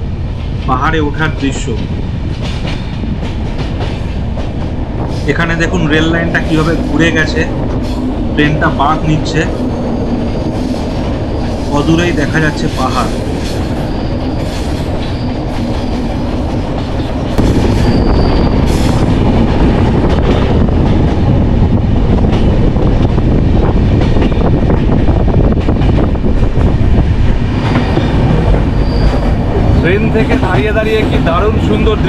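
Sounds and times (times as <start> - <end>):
train wheels clattering on rails: 0.2 - 32.0
high wheel squeals: 13.6 - 16.2, 17.6 - 19.1, 27.6 - 30.1.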